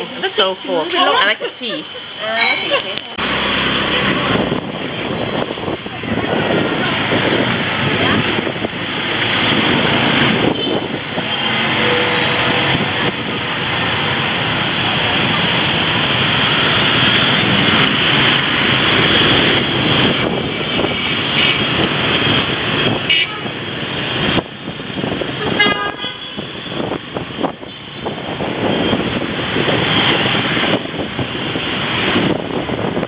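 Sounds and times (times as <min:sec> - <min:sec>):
motorbike engine and road noise: 0:00.0 - 0:33.0
vehicle horns tooting: 0:10.4 - 0:13.1, 0:20.8 - 0:23.8, 0:25.4 - 0:27.0.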